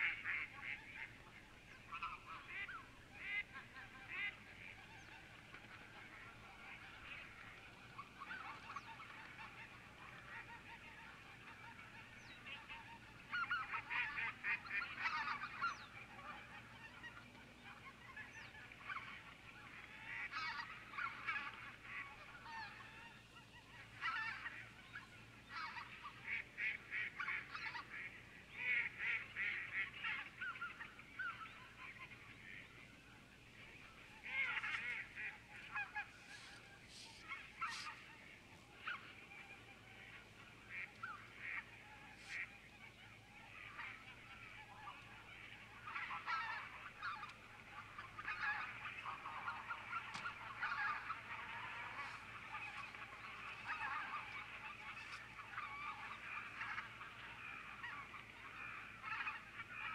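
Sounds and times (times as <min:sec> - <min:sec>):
geese honking: 0:00.0 - 0:59.9.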